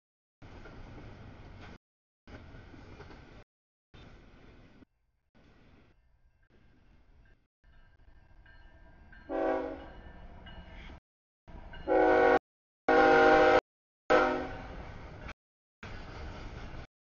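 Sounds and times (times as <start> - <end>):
locomotive horn blasts: 9.3 - 9.9, 11.9 - 14.8.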